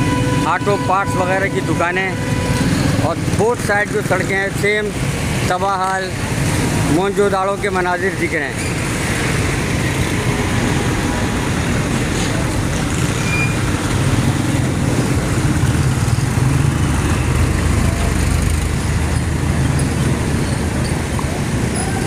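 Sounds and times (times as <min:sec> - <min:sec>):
traffic engines passing: 0:00.0 - 0:22.0
truck engine rumble: 0:00.0 - 0:22.0.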